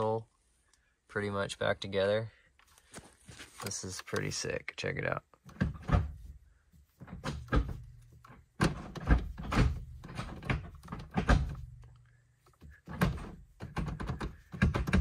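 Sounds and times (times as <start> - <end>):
gear lever clunking into gear: 7.0 - 15.0.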